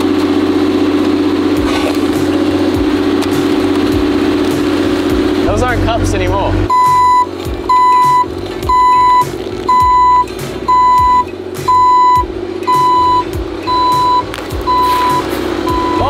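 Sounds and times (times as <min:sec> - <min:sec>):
diesel engine running: 0:00.0 - 0:16.0
backup alarm beeping: 0:06.7 - 0:16.0.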